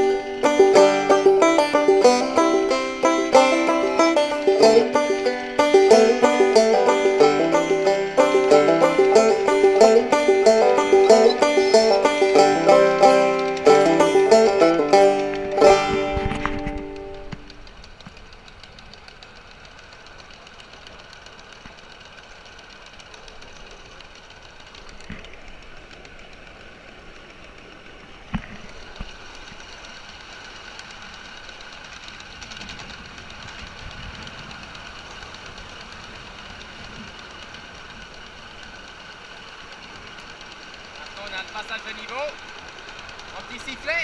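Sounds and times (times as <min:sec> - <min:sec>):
miniature steam locomotive running: 0:00.0 - 0:44.0
wheels clattering on rails: 0:00.0 - 0:44.0.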